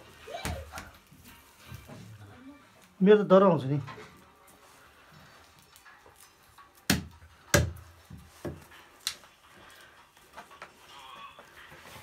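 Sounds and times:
knife chopping meat on wood: 0:06.9 - 0:07.8.

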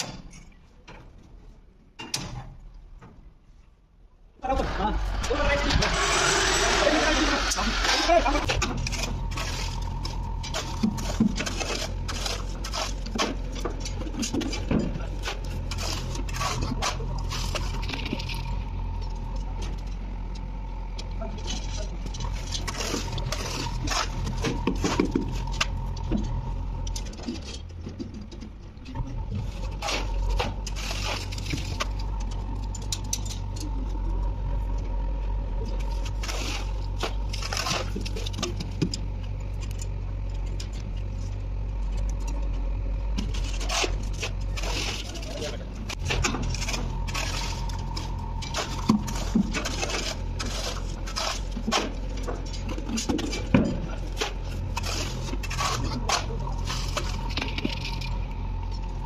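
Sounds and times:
low machine hum: 0:02.6 - 0:59.0
shovels scraping on concrete: 0:04.8 - 0:18.4, 0:21.6 - 0:25.7, 0:29.5 - 0:32.0, 0:43.6 - 0:52.0.

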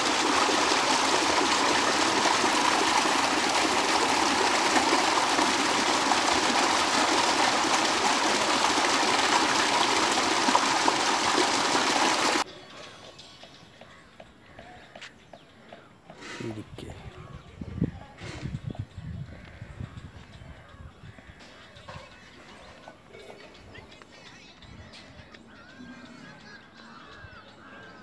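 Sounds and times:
water gushing into a tank: 0:00.0 - 0:12.4.

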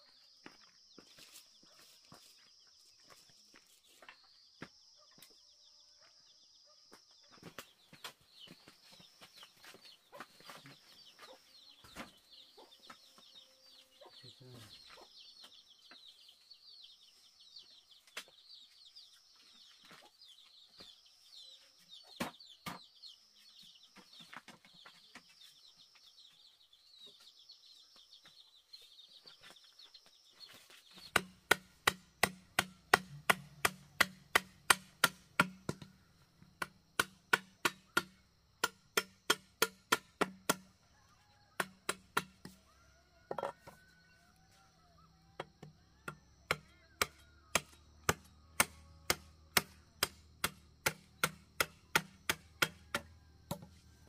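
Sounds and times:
bamboo shelf knocking: 0:31.1 - 0:36.0, 0:43.3 - 0:43.8
machete chopping bamboo: 0:31.1 - 0:36.0, 0:36.6 - 0:40.8, 0:41.6 - 0:42.6, 0:46.5 - 0:53.8.

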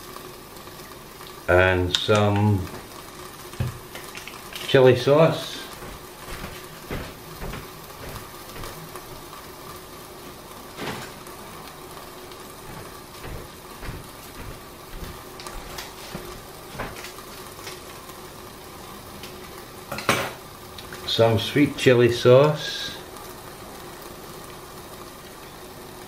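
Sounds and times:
food sizzling in pans: 0:00.0 - 0:26.0.

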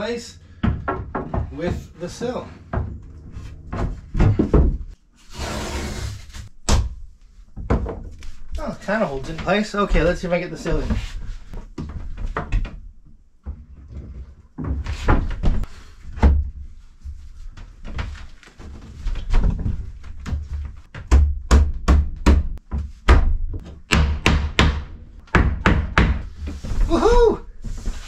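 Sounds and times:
wood scraping and knocking on wood: 0:00.4 - 0:06.5.

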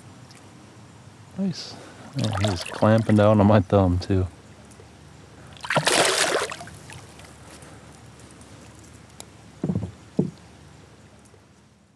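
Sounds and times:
fish splashing at surface: 0:05.6 - 0:07.0
dull knocks: 0:09.6 - 0:10.4.

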